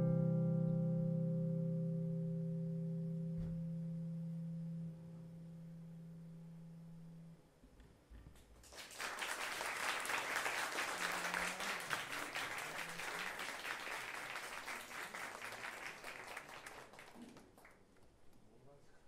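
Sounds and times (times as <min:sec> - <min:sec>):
audience applauding: 0:08.6 - 0:17.9.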